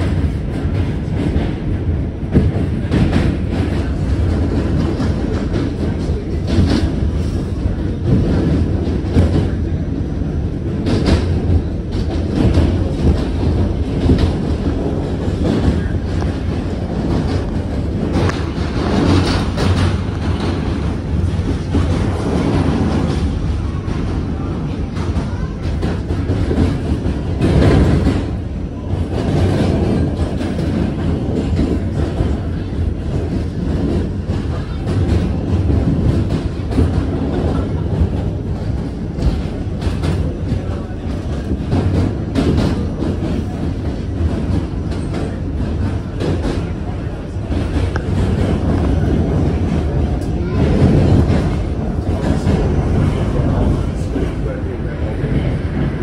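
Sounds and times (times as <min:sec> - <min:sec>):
clacks over rail joints: 0:00.0 - 0:56.0
subway train rumbling on rails: 0:00.0 - 0:56.0.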